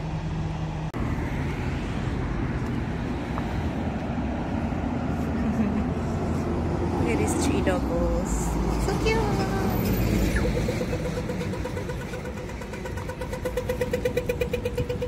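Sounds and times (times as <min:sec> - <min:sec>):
road vehicles rumbling: 0:00.0 - 0:15.0.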